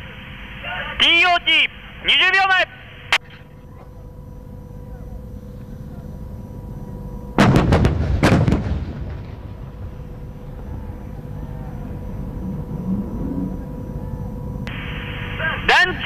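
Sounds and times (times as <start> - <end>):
low steady rumble: 2.7 - 15.7
low rolling echo: 5.9 - 15.4
heavy gun blasts: 7.4 - 10.2.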